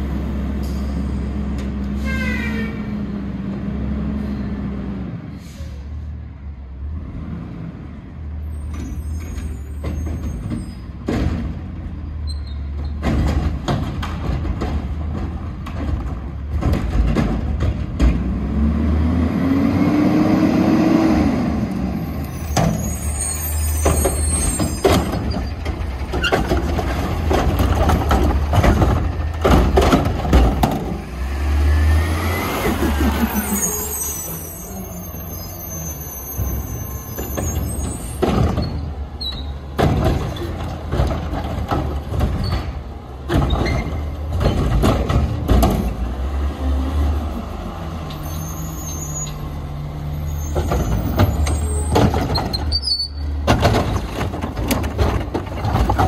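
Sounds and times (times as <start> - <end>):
air brake hisses: 5.3 - 5.9
knocks and clanks: 8.7 - 11.9, 12.7 - 18.5, 23.7 - 31.1, 37.2 - 46.1, 50.5 - 52.7, 53.3 - 56.0.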